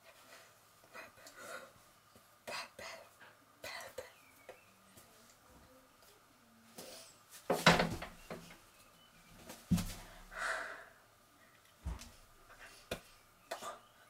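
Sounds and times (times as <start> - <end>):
knocks and thumps of body movements: 7.4 - 8.6, 9.4 - 10.2, 11.8 - 12.3.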